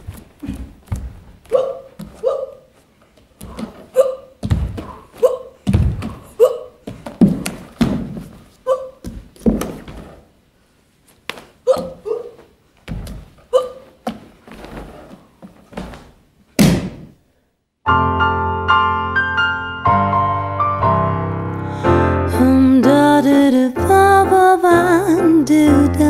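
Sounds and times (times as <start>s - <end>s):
body and feet thudding on stage: 0.0s - 10.3s, 11.2s - 17.2s
piano music: 17.8s - 26.0s.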